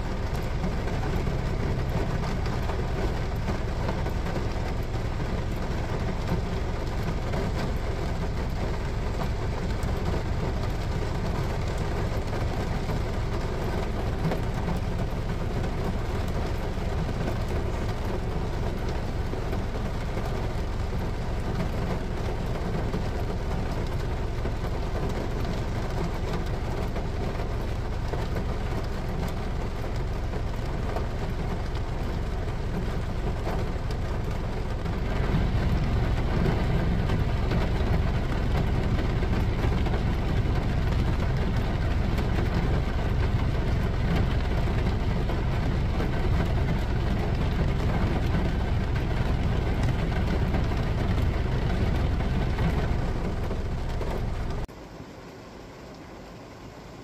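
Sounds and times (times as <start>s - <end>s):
heavy rain on car roof: 0.0s - 57.0s
car rumble: 24.6s - 54.7s.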